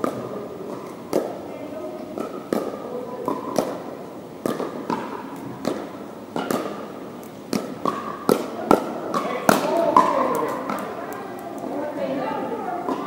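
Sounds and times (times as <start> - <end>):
paddles hitting plastic ball: 0.0 - 1.4, 2.1 - 11.8.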